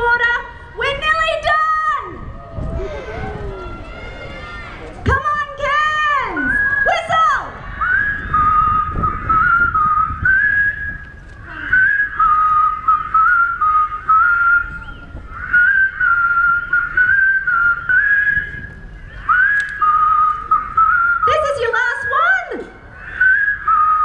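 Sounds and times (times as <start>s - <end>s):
crowd whistling a tune: 6.4s - 21.5s, 23.0s - 24.0s.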